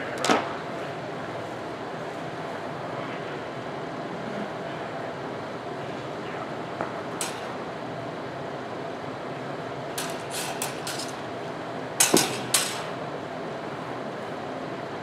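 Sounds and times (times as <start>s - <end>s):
fencing blades clinking: 10.0s - 11.2s, 12.0s - 13.0s.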